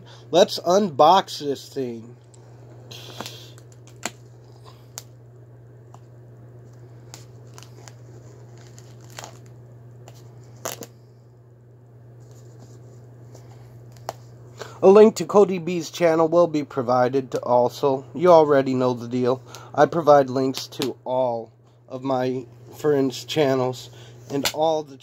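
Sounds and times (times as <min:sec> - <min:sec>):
steady low hum: 0:00.0 - 0:25.0
sharp cellophane crackle: 0:07.1 - 0:09.5
cellophane crinkling and rustling: 0:07.1 - 0:10.9.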